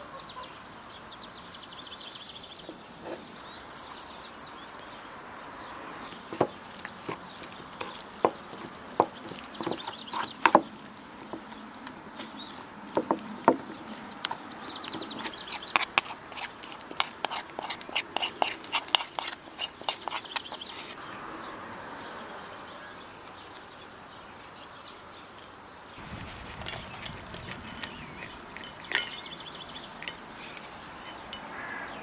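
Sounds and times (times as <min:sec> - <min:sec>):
wet squelches and clicks: 0:06.0 - 0:21.0.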